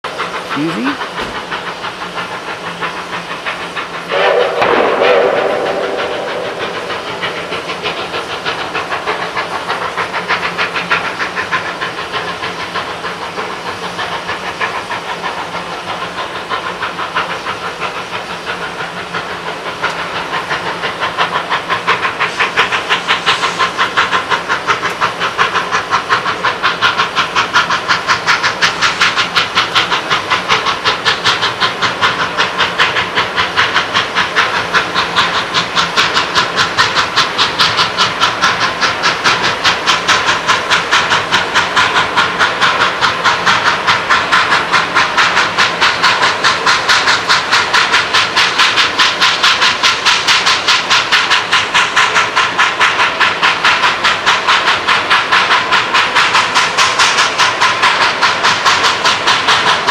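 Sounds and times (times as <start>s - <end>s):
steam hiss: 0.1s - 59.9s
steam locomotive exhaust beats: 0.1s - 59.9s.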